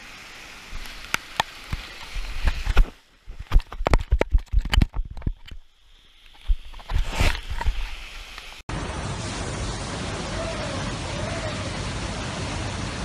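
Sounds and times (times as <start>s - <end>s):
floodwater rushing: 6.3s - 13.0s.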